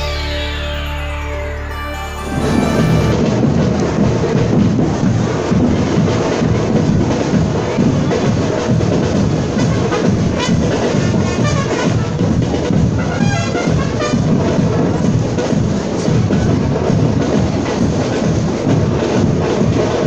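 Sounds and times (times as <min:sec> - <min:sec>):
higher melodic phrases: 0:00.0 - 0:03.7
marching band playing: 0:00.0 - 0:20.0
bass and snare drums: 0:02.3 - 0:20.0.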